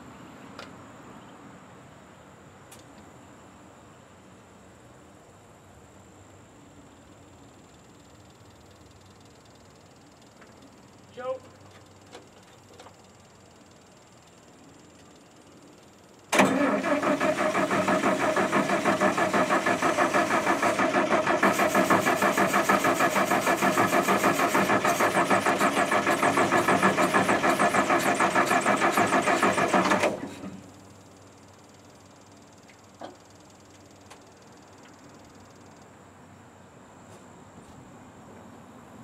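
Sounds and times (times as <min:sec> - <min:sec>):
starter cranking engine: 0:16.3 - 0:30.6.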